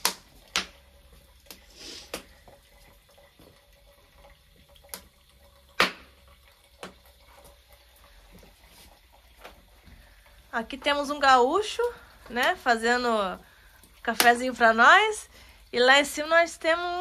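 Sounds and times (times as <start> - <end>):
fire popping: 0.0 - 3.7
wood fire crackling: 0.0 - 17.0.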